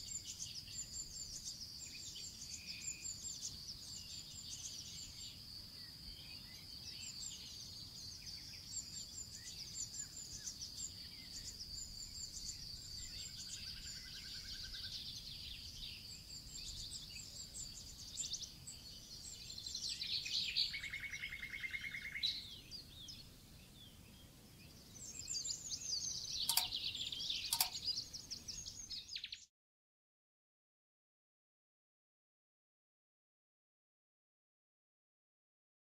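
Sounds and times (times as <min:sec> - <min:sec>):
small birds chirping: 0:00.0 - 0:29.5
sharp clicks: 0:26.5 - 0:26.8, 0:27.4 - 0:27.8.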